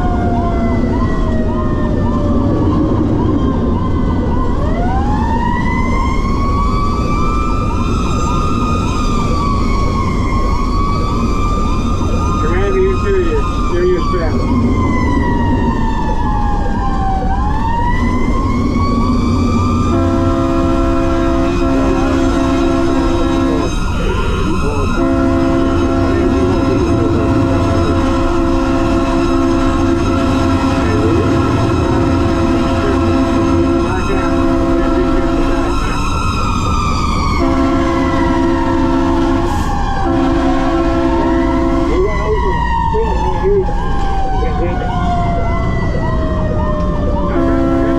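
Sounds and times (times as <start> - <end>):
fire engine siren wailing: 0.0 - 47.9
truck rumble: 0.0 - 47.9
multi-tone air horn: 19.9 - 23.8, 24.6 - 35.9, 37.4 - 42.3, 47.3 - 47.9.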